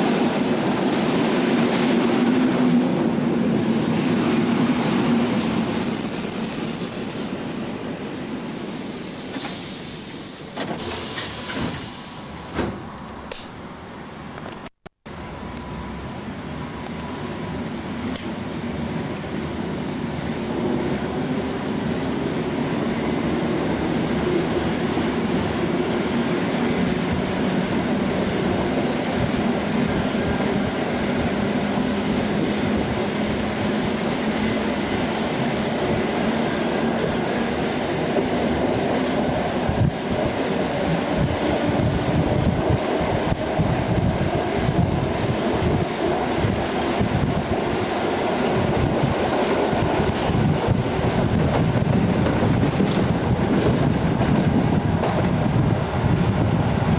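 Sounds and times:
train rail rumble: 0.0s - 56.9s.

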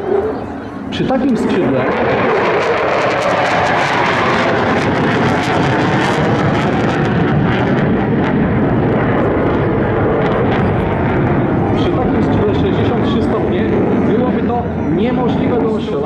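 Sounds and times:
jet roar with crackling: 0.0s - 16.0s.

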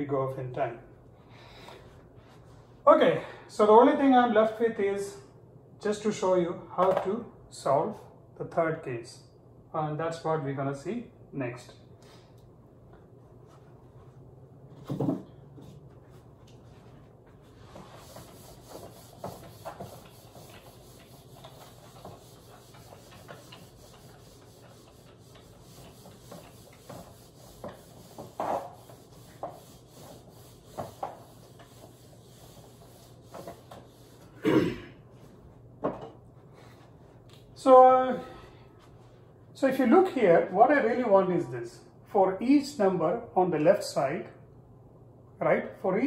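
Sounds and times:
eraser rubbing on whiteboard: 17.5s - 34.4s.

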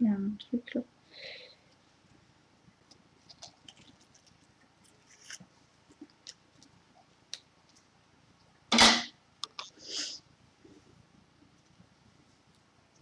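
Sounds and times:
wig rustling: 2.8s - 7.9s.

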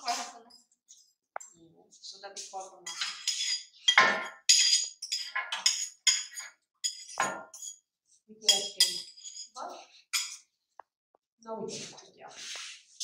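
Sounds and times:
spoon scraping and clinking bowls: 2.8s - 10.5s.

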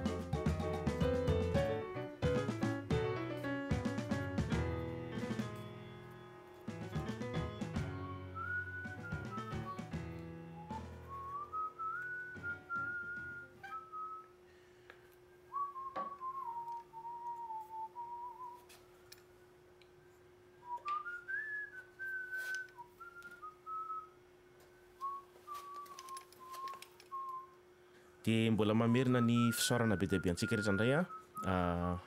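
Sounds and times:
person whistling a tune: 7.6s - 14.4s, 15.3s - 18.8s, 20.6s - 24.2s, 25.0s - 27.6s, 28.9s - 32.0s
faint steady hum: 10.0s - 32.0s.

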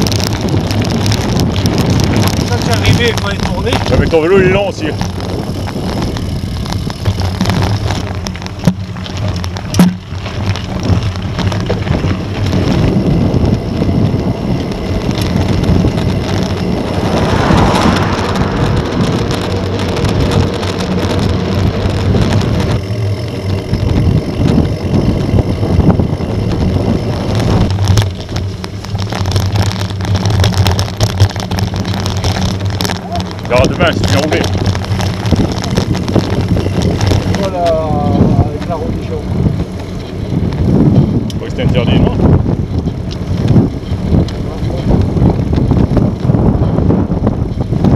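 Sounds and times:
tyres rolling over dirt: 0.0s - 47.9s
wind buffeting microphone: 0.0s - 47.9s
bike knocks: 0.1s - 13.5s.

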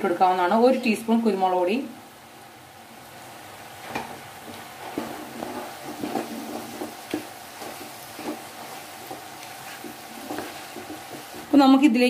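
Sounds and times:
low sizzle: 0.0s - 12.0s
spatula scraping food in pan: 4.0s - 11.7s.

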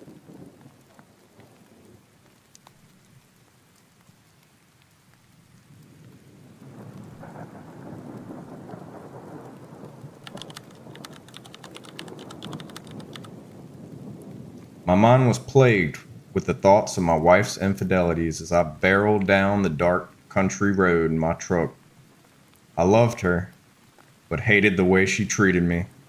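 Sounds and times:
rain pattering: 0.0s - 26.0s
sharp crackles: 0.0s - 26.0s
rolling thunder: 5.7s - 21.8s.

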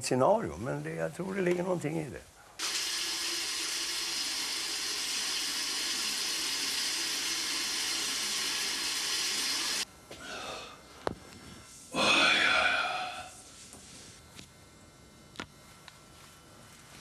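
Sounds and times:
tap water running into sink: 2.6s - 9.8s.

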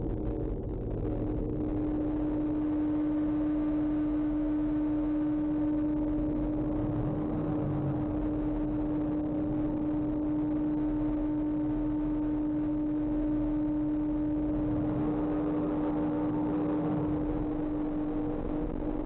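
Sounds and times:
low droning tone: 0.0s - 19.0s
low rumble: 0.0s - 19.0s.

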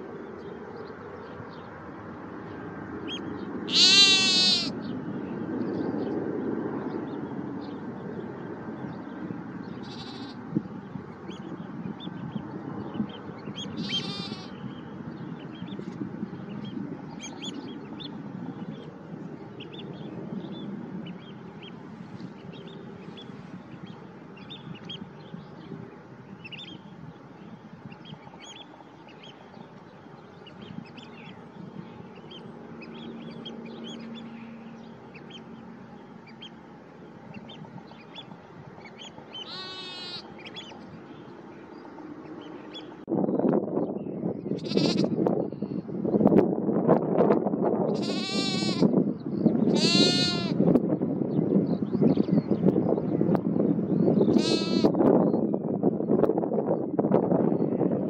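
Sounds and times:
small birds chirping: 0.3s - 46.0s, 47.8s - 55.5s
fast rattling bird call: 3.7s - 4.7s, 9.8s - 10.4s, 13.6s - 14.6s, 39.3s - 40.7s, 49.7s - 50.5s, 54.3s - 54.9s.

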